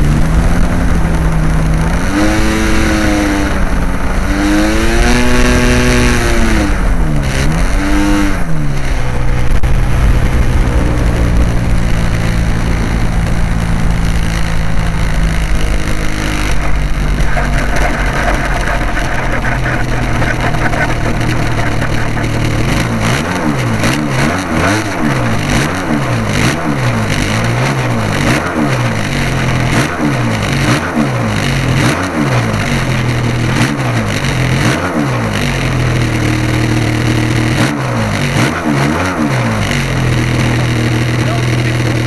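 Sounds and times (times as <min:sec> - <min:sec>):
model aircraft engine idling: 0:09.0 - 0:28.2
second model engine wavering: 0:16.4 - 0:26.5.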